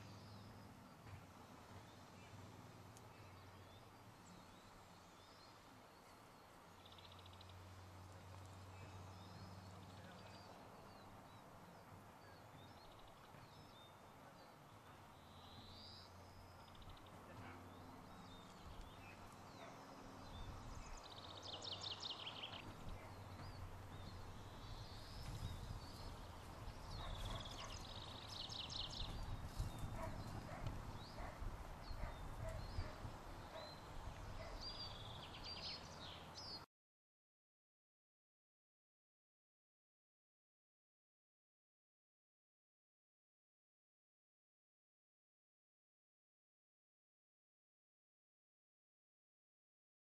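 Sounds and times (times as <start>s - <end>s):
faint outdoor background: 0.0s - 36.7s
small birds singing: 0.0s - 36.7s
paws galloping over turf: 22.4s - 34.6s.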